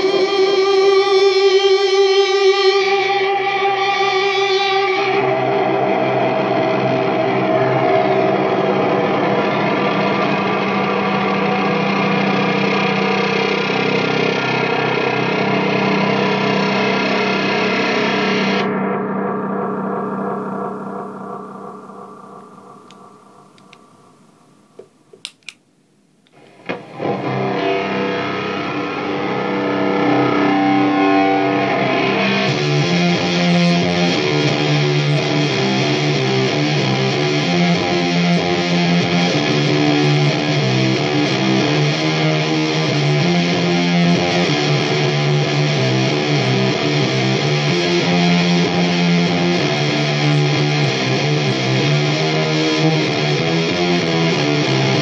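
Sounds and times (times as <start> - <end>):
distorted electric guitar riff: 0.0 - 24.2, 26.3 - 55.0
clicks: 22.8 - 23.9, 24.8 - 26.6.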